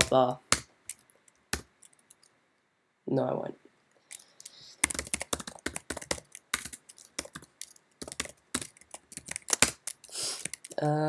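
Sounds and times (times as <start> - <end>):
typing on computer keyboard: 4.1 - 10.8.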